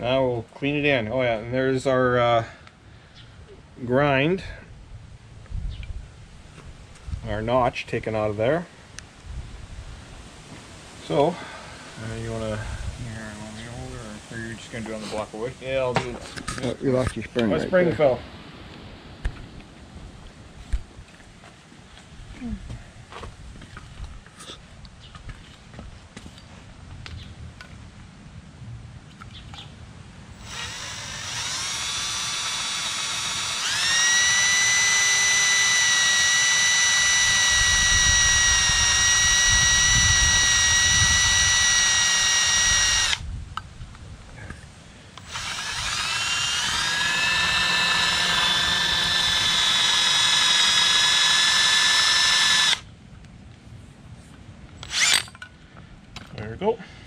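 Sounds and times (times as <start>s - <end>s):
cordless drill whining: 30.4s - 43.2s, 45.2s - 52.9s, 54.8s - 55.3s.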